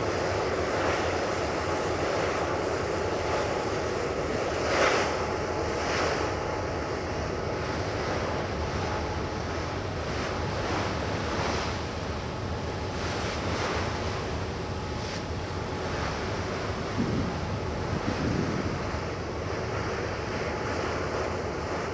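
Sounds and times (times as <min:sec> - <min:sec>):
choppy sea water: 0:00.0 - 0:21.9
wind buffeting microphone: 0:16.7 - 0:19.4.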